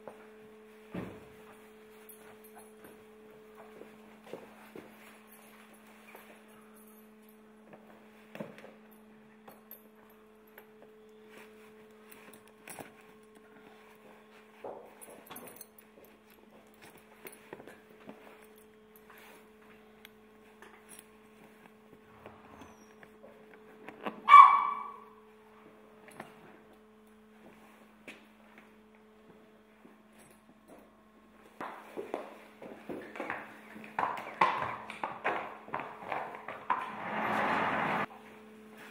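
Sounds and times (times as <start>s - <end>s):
hooves clopping on floor: 0.0s - 26.8s, 27.4s - 38.9s
leather straps and buckles clicking: 2.0s - 24.9s
short bark-like call: 24.3s - 25.0s.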